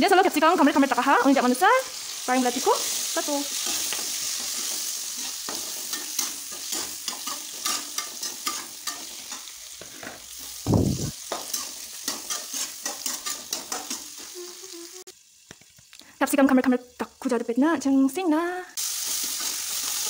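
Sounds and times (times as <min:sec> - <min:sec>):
vegetables sizzling in oil: 0:00.0 - 0:20.0
metal spatula scraping wok: 0:02.8 - 0:10.6, 0:11.3 - 0:14.3.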